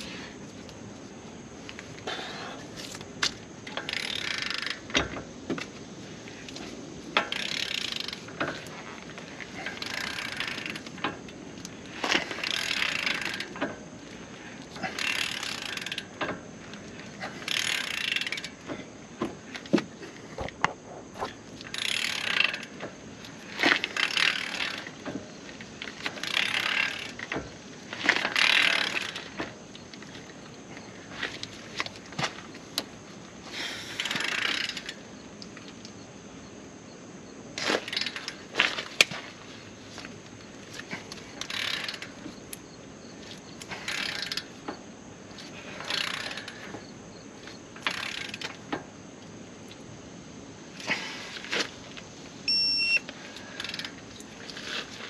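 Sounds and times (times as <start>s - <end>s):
ratchet clicking: 3.6s - 5.1s, 7.2s - 8.7s, 9.6s - 13.7s, 14.9s - 16.8s, 17.4s - 18.6s, 21.6s - 22.9s, 23.5s - 25.2s, 25.9s - 27.4s, 28.0s - 29.4s, 41.4s - 42.6s, 43.8s - 44.6s, 45.8s - 46.7s, 47.8s - 48.6s.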